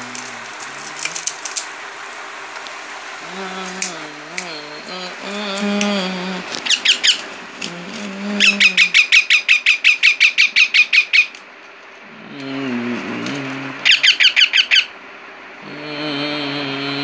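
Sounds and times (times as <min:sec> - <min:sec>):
parakeet squawking: 0:03.4 - 0:11.4, 0:13.8 - 0:15.0.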